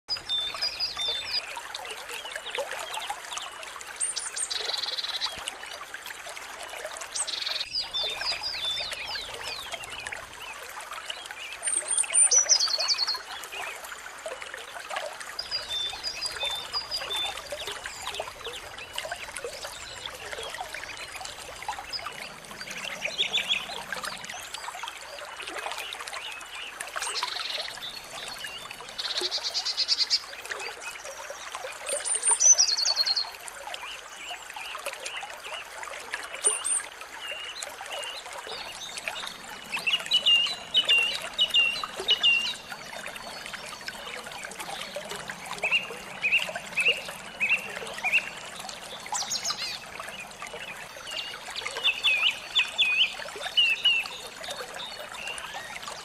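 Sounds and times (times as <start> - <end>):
running water: 0.1 - 56.0
songbirds calling: 15.3 - 35.6, 36.3 - 56.0.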